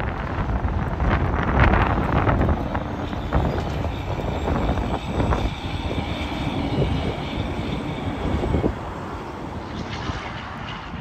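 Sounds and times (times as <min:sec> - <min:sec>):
highway traffic passing: 0:00.0 - 0:11.0.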